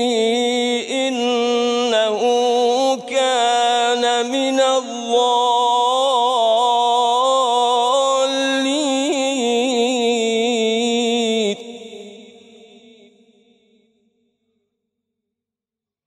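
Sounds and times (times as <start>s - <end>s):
man reciting melodically: 0.0s - 13.2s.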